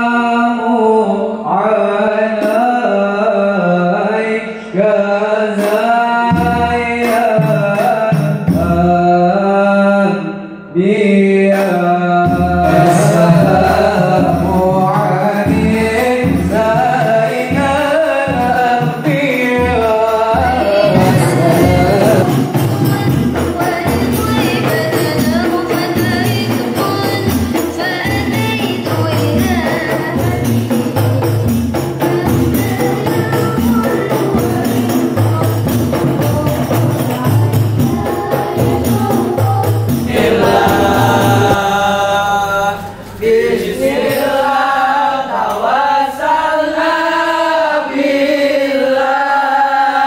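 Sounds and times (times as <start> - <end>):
group of men singing: 0.0 - 50.0
lead voice singing: 0.0 - 50.0
hand drums playing: 12.2 - 45.7.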